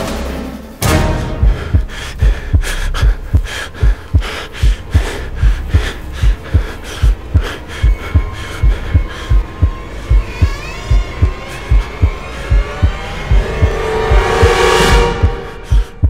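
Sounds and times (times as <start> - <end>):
heartbeat thumps: 1.4 - 16.0.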